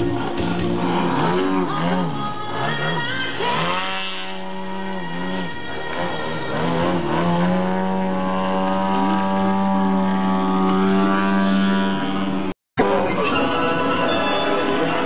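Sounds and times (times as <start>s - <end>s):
propeller plane engine: 3.6s - 13.1s.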